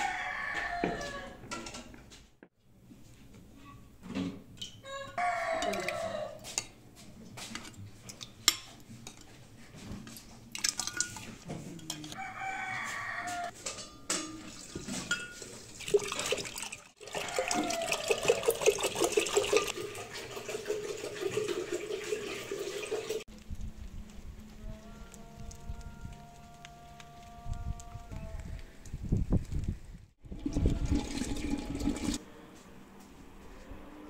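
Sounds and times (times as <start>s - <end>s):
rooster crowing: 0.0s - 1.5s, 4.8s - 6.5s, 12.2s - 13.6s, 17.0s - 18.6s.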